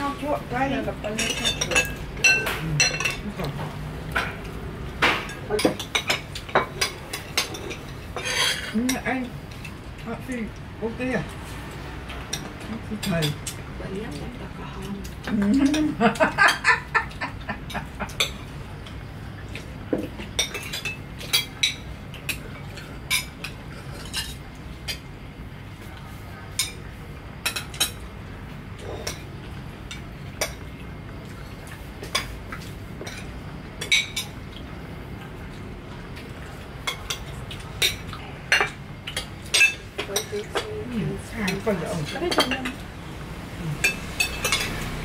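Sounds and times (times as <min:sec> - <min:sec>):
cutlery clinking on plates: 0:01.1 - 0:09.1, 0:36.8 - 0:40.7, 0:43.8 - 0:45.0.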